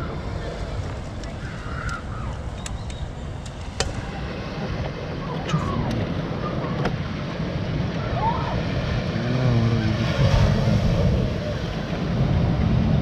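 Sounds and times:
small waves washing onto beach: 0.0s - 13.0s
wind on microphone: 0.0s - 13.0s.

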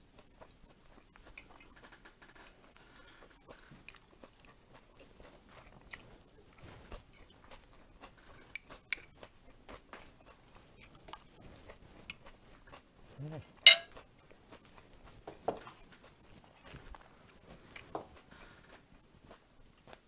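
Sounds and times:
quiet mouth sounds: 12.7s - 13.6s
cutlery clicking on glass cup: 13.7s - 14.0s.

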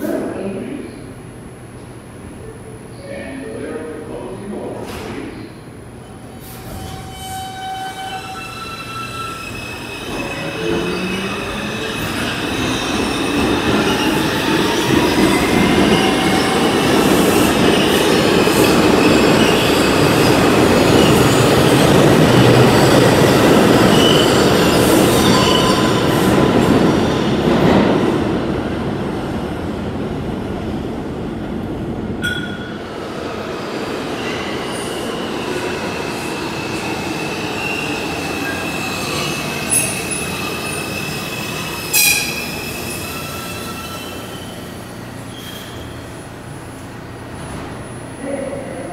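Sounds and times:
subway train rumbling: 0.0s - 48.9s
train wheels squealing: 6.0s - 26.3s, 34.2s - 46.2s.

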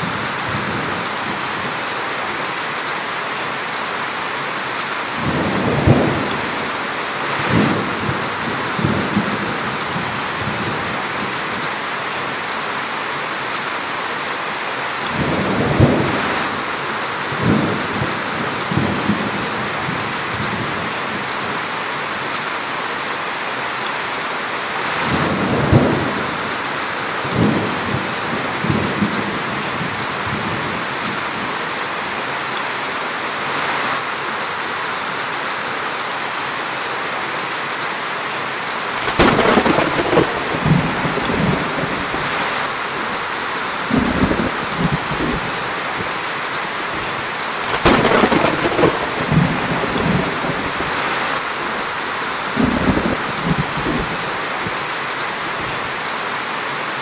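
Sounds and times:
heavy rain on trees and grass: 0.0s - 57.0s
thunder rumbling: 5.2s - 11.4s, 15.1s - 21.3s, 39.0s - 46.2s, 47.0s - 54.7s.

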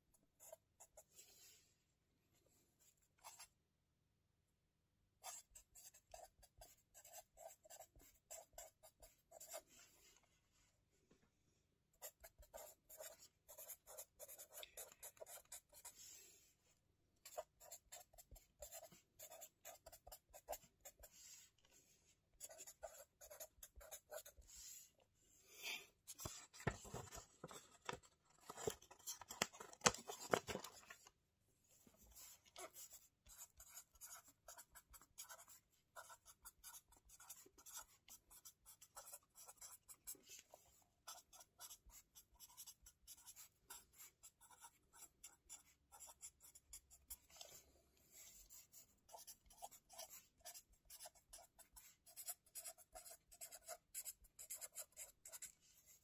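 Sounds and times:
pen scratching on paper: 0.3s - 1.1s, 5.2s - 9.8s, 12.0s - 16.2s, 17.2s - 21.5s, 22.4s - 24.8s, 32.0s - 56.0s.

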